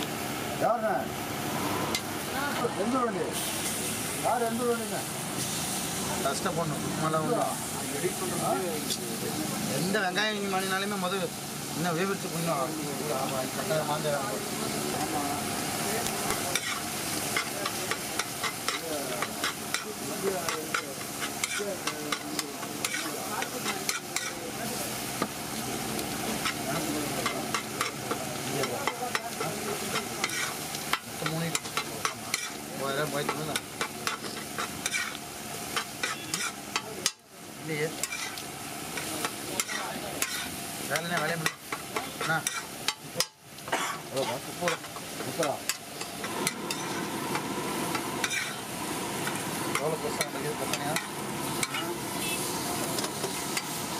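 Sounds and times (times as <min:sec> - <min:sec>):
eggs and fish sizzling: 0:00.0 - 0:53.9
metal spatula scraping iron pan: 0:35.8 - 0:37.2, 0:48.2 - 0:48.6.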